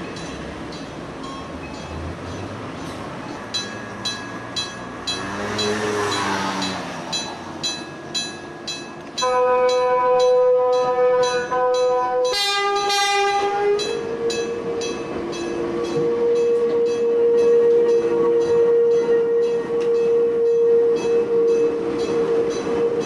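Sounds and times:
train high whine: 0.0 - 23.0
train horn blasts: 9.2 - 23.0.

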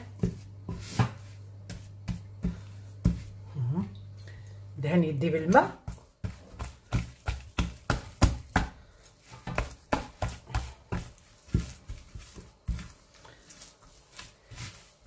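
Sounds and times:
wet hands slapping dough: 5.5 - 15.0.

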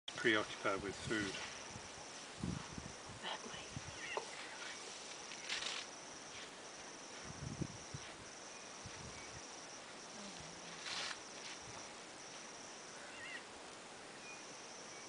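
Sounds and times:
insects chirring: 0.1 - 15.0
elephant tearing up grass: 5.4 - 5.9.

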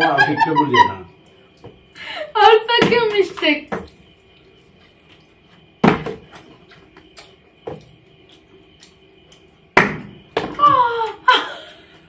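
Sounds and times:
plastic bottle thudding on tiled floor: 5.8 - 6.4, 9.8 - 10.7.

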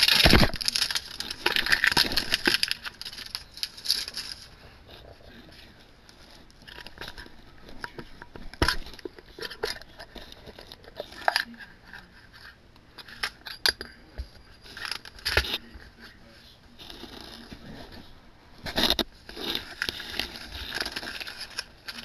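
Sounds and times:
metal tin scraping and rustling: 0.0 - 5.2, 18.6 - 22.0.

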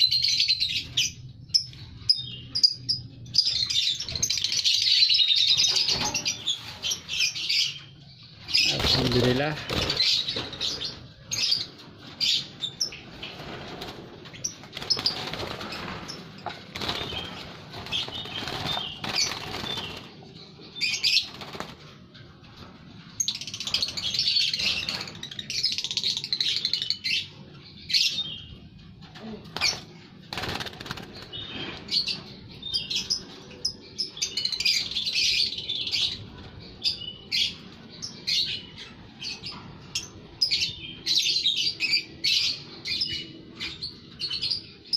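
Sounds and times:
lovebirds chirping: 0.0 - 21.8
wings flapping: 8.7 - 10.9, 13.1 - 20.2, 21.2 - 21.9, 29.6 - 31.4.

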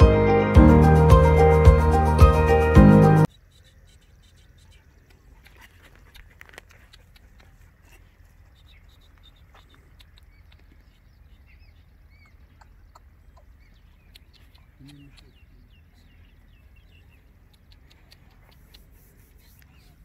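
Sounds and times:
small birds chirping: 3.2 - 20.0
dog sniffing at a burrow: 4.6 - 10.3, 17.5 - 20.0.

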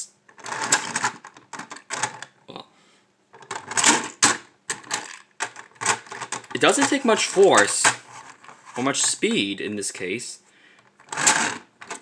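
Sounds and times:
plastic toy track clicking and rattling: 0.3 - 2.3, 3.4 - 9.2, 11.0 - 12.0.

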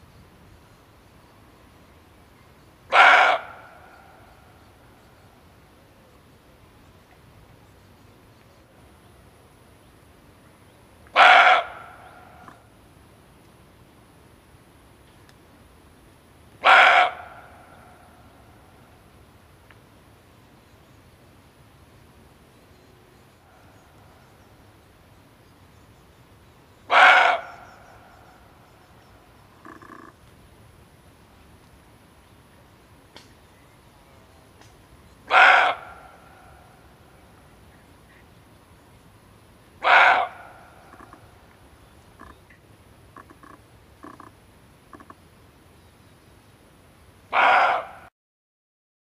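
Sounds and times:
deer barking: 2.9 - 3.6, 11.2 - 12.6, 16.6 - 17.5, 26.9 - 27.6, 35.3 - 36.2, 39.8 - 41.2, 47.3 - 48.1.

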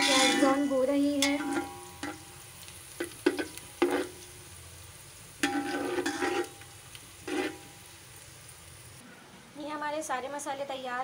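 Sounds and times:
spatula scraping pot: 0.0 - 2.2, 3.0 - 4.2, 5.4 - 6.6, 7.2 - 7.7
onions sizzling in oil: 0.0 - 9.0.

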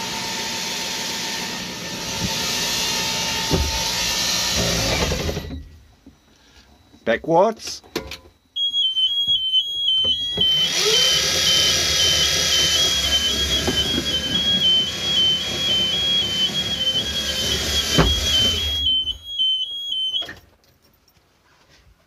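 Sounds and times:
electric motor whine: 0.0 - 5.7, 9.8 - 19.4
two-tone reverse warning beeper: 3.3 - 20.4.

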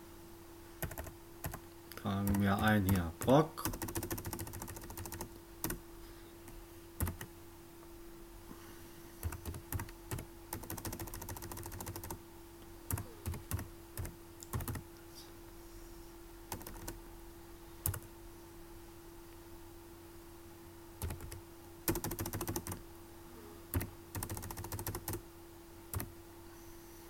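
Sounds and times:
faint steady hum: 0.0 - 27.0
computer keyboard typing: 0.8 - 1.6, 2.2 - 5.8, 7.0 - 7.3, 9.2 - 12.2, 12.9 - 14.8, 16.5 - 17.0, 17.9 - 18.1, 21.0 - 22.8, 23.7 - 25.2, 25.9 - 26.1.

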